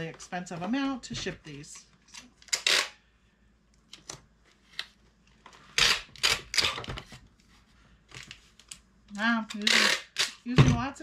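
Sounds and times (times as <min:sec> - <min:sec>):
packing tape ripping: 0:05.8 - 0:06.9
tape gun clicks: 0:09.5 - 0:10.4.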